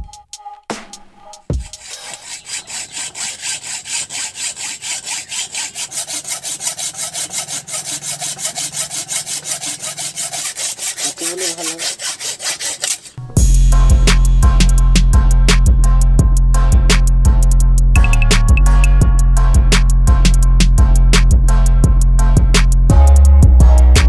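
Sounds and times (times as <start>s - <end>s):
hacksaw cutting steel bolts: 1.7s - 13.2s
loud music with a beat: 13.4s - 24.0s.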